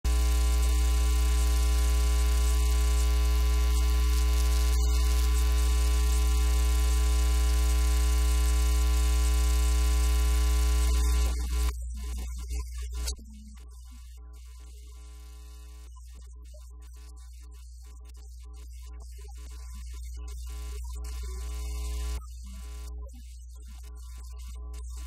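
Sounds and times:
electrical mains hum: 0.1s - 11.7s.

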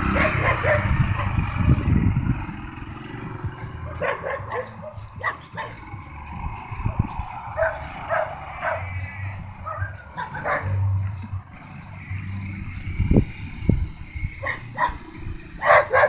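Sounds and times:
motorcycle engine pulling away: 0.0s - 16.0s
dog barking: 0.1s - 1.4s, 3.8s - 5.8s, 7.6s - 8.9s, 9.6s - 10.9s, 14.4s - 16.0s.

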